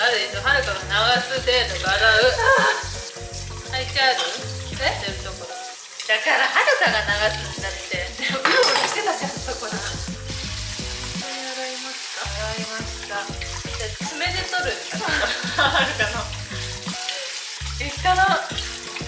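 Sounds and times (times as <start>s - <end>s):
tap water running: 0.0s - 19.0s
background music with pulsing bass: 0.4s - 5.4s, 6.9s - 8.2s, 9.4s - 11.2s, 15.0s - 16.9s.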